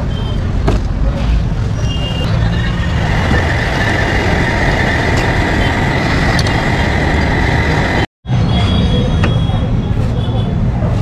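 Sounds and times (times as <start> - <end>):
vehicle traffic: 0.0 - 11.0
high-pitched whine: 1.8 - 8.6.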